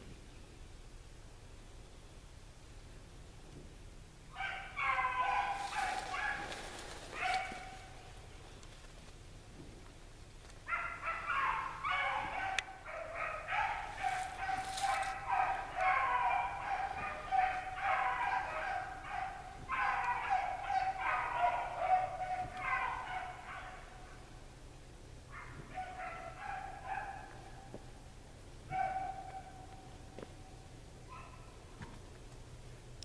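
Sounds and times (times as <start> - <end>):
hounds baying: 4.3 - 8.2, 10.6 - 24.3, 25.3 - 28.0, 28.7 - 31.6.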